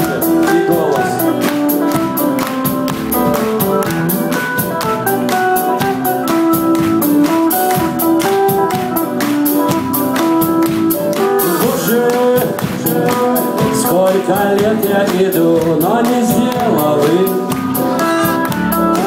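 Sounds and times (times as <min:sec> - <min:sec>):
held melody notes: 0:00.0 - 0:14.9
acoustic guitar: 0:00.0 - 0:19.0
drums keeping a steady beat: 0:00.0 - 0:19.0.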